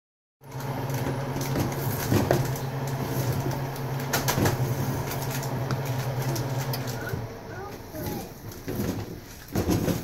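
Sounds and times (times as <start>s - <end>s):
steady low hum: 0.5s - 10.0s.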